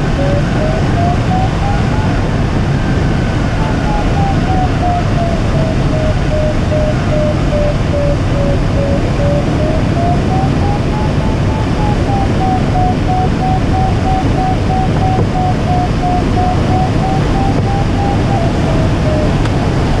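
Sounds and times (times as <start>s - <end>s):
air rushing past glider canopy: 0.0s - 20.0s
variometer beeping: 0.0s - 20.0s.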